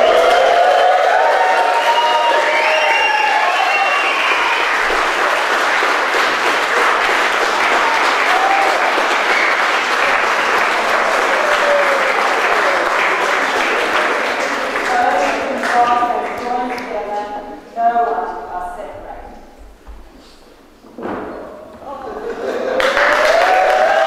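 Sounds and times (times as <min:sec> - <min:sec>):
crowd applauding: 0:00.0 - 0:17.2, 0:22.3 - 0:24.0.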